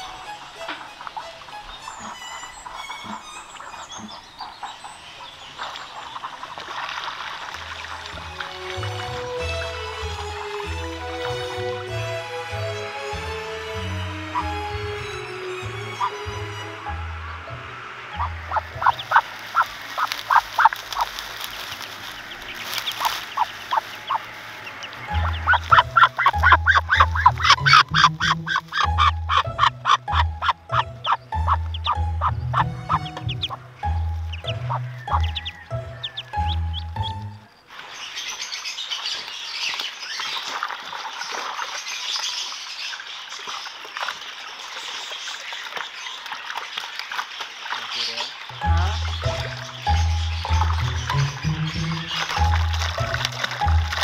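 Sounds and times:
waterfowl calling: 0.0s - 54.0s
catfish thrashing: 17.8s - 37.2s, 48.5s - 54.0s.

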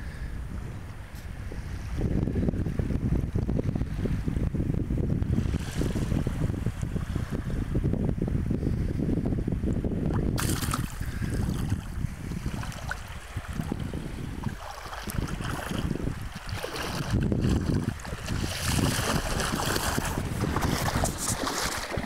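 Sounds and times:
wind buffeting microphone: 0.0s - 22.0s
small waves lapping and splashing: 10.3s - 22.0s.

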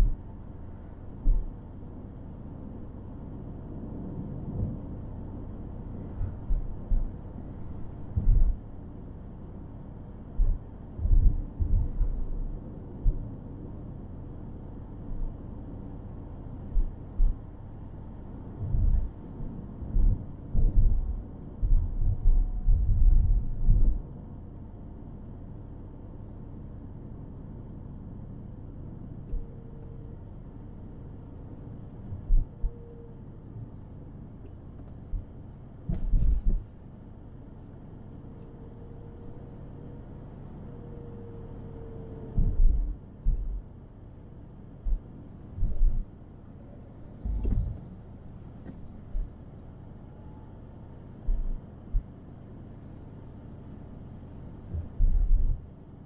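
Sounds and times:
road and engine rumble: 0.0s - 56.0s
short low thumps: 42.4s - 43.6s, 47.2s - 47.8s, 51.2s - 52.1s, 54.7s - 55.6s.

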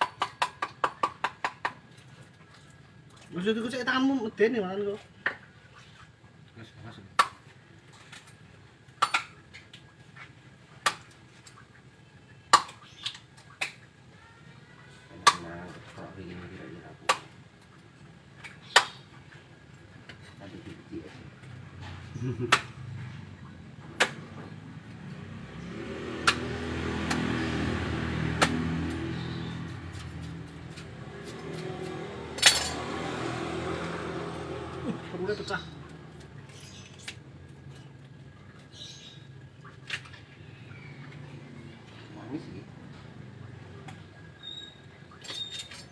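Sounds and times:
vehicle engine passing by: 20.6s - 36.6s, 40.3s - 44.3s.

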